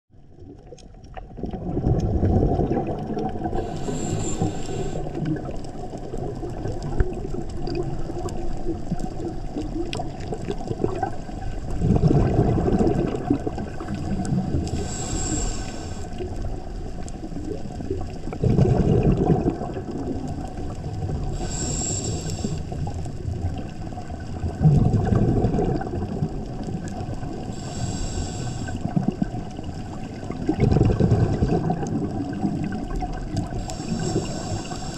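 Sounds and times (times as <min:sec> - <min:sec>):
exhaled bubbles rumbling: 0:00.1 - 0:34.9
regulator inhale hiss and whistle: 0:03.5 - 0:05.3, 0:14.7 - 0:16.3, 0:21.3 - 0:22.9, 0:27.5 - 0:28.9, 0:33.5 - 0:34.9.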